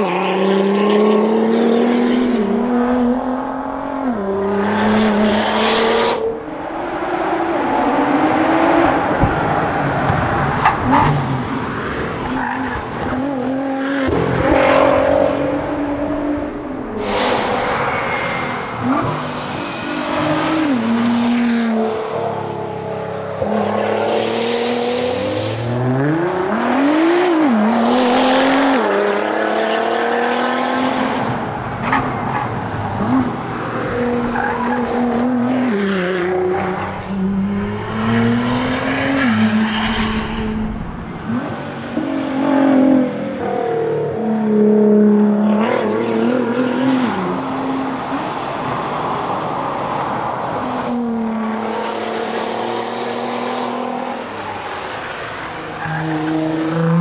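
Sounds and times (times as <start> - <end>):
car engine accelerating hard: 32.9 - 47.4.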